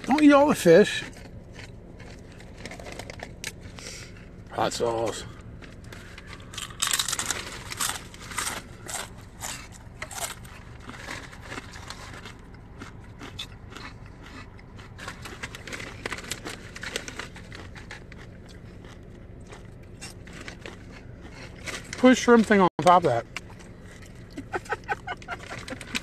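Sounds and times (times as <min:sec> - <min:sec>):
plastic containers crinkling: 0:01.0 - 0:03.6, 0:05.6 - 0:12.6, 0:14.8 - 0:22.3
plastic bag crinkling: 0:05.6 - 0:12.5, 0:14.9 - 0:18.4.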